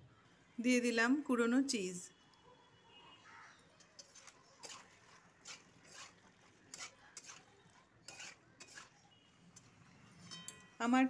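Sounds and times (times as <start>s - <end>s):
utensil scraping metal pan: 4.0s - 10.6s.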